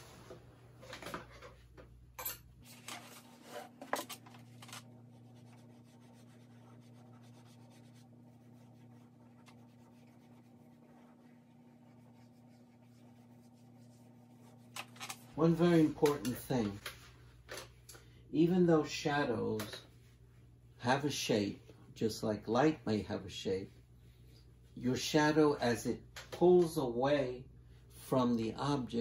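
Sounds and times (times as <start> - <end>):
low steady hum: 0.0 - 29.0
drawing strokes on paper: 5.0 - 14.8.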